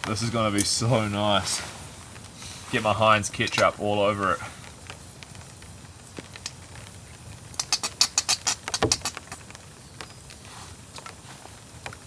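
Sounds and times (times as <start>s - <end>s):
squeeze bottle sputtering: 7.5s - 9.5s.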